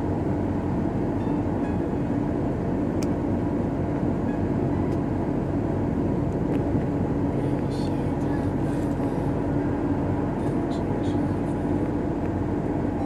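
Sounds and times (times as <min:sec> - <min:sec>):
car engine cruising: 0:00.0 - 0:13.0
tyre road noise: 0:00.0 - 0:13.0.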